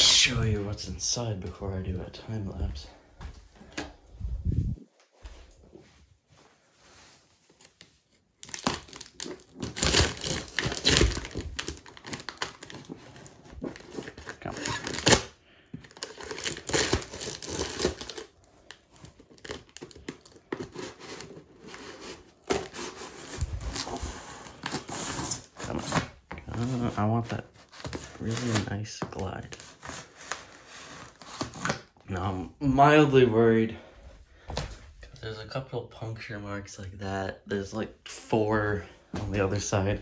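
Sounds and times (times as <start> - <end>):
scissors cutting packing tape: 8.4 - 12.8, 13.8 - 15.3, 16.0 - 18.3
plastic wrap crinkling and tearing: 8.4 - 32.0.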